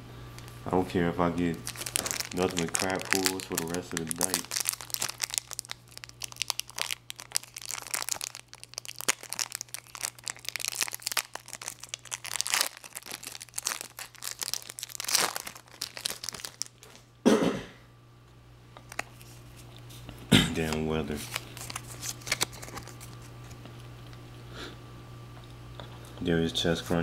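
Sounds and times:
foil wrapper crinkling and tearing: 0:01.4 - 0:17.0, 0:18.8 - 0:19.8, 0:20.6 - 0:23.6.

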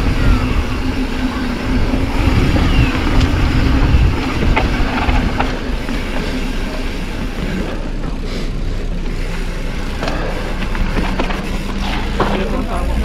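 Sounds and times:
wind rumble on microphone: 0:00.0 - 0:06.4
bike rattling clicks: 0:00.0 - 0:08.2, 0:09.1 - 0:13.0
bike tyres on gravel: 0:00.0 - 0:13.0.

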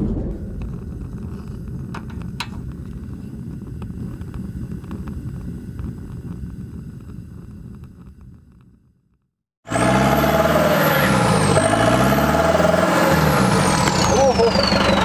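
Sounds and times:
fire crackles: 0:00.0 - 0:09.4
fire low rumble: 0:00.0 - 0:15.0.

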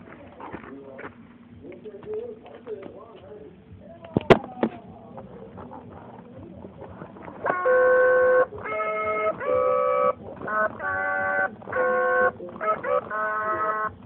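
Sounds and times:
singing toy held notes: 0:07.4 - 0:14.0.

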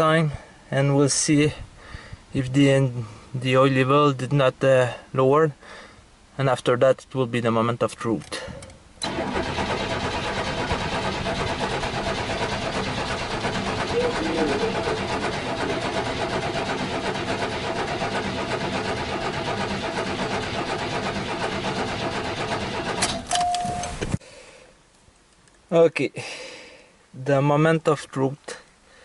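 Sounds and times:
engine cranking without firing: 0:08.2 - 0:24.2.

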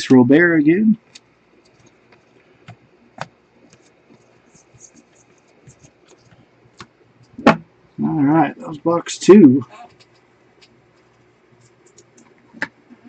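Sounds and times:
cards rustling and sliding: 0:01.1 - 0:06.9
small clicks: 0:09.9 - 0:13.0.

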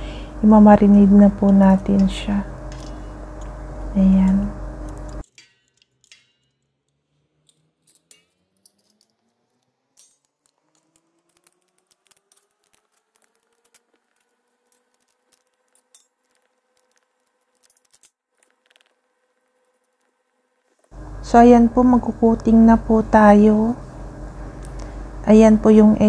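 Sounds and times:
metal tongs clicking on steel bowl: 0:01.5 - 0:03.6.

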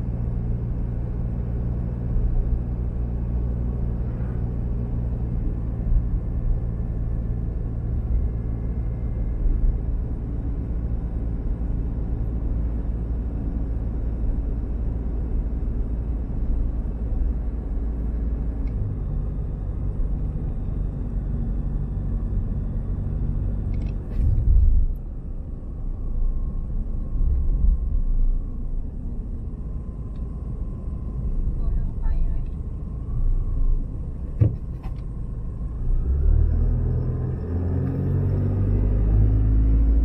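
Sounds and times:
diesel engine and tyres rumbling: 0:00.0 - 0:40.0
clicks and short thump: 0:34.4 - 0:35.0.

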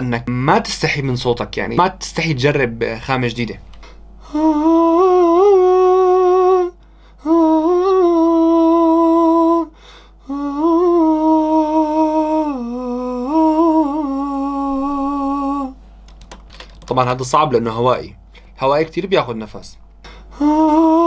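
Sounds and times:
man singing held notes: 0:04.2 - 0:15.8, 0:20.3 - 0:21.0
man breathing: 0:06.8 - 0:07.4, 0:09.7 - 0:10.7, 0:20.0 - 0:20.7.

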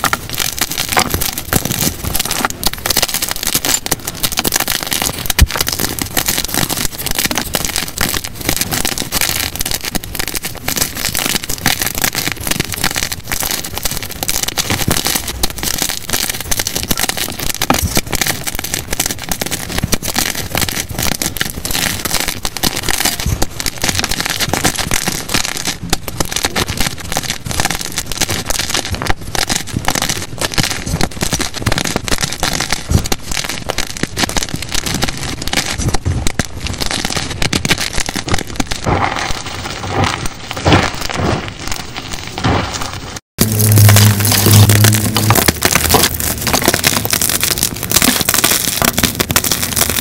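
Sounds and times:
chalk crunching and crackling: 0:00.0 - 0:28.0, 0:38.7 - 0:50.0.

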